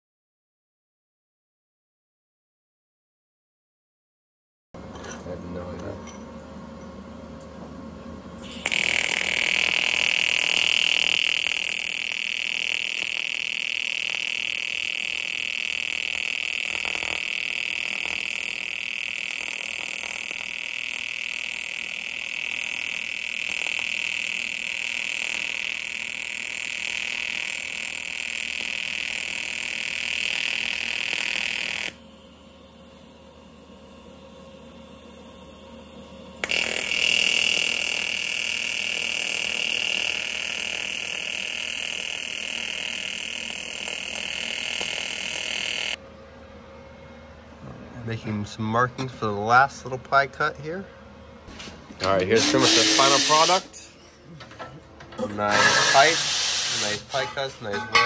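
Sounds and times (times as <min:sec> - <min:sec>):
welding arc buzzing: 0:08.4 - 0:46.0, 0:52.1 - 0:53.9, 0:55.3 - 0:58.0.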